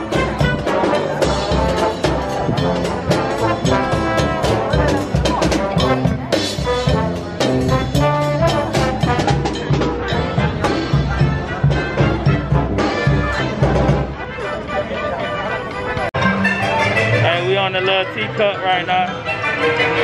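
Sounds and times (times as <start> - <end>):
steady drumbeat: 0.0 - 14.2
brass marching band playing: 0.0 - 20.0.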